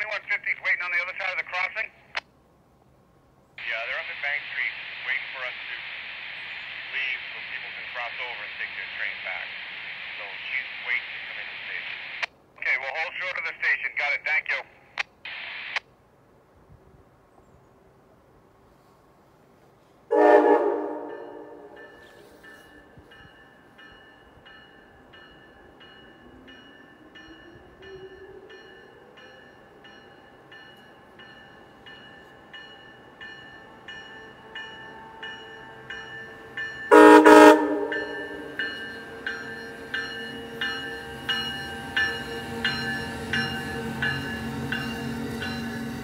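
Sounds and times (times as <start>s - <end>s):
train horn toot: 20.1s - 22.4s, 36.9s - 38.5s
regular ringing pulse of train: 20.1s - 46.0s.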